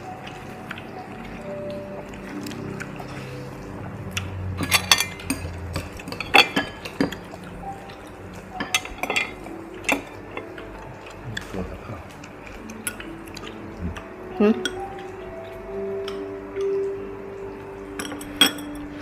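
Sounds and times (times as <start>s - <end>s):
metal utensils clinking on bowls: 4.2s - 13.6s, 14.4s - 15.1s, 17.9s - 19.0s.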